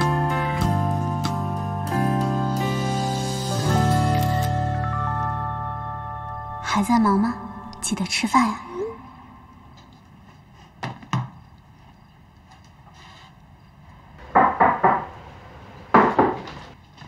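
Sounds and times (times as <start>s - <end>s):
knocking on wooden door: 14.3s - 15.1s, 15.9s - 16.5s.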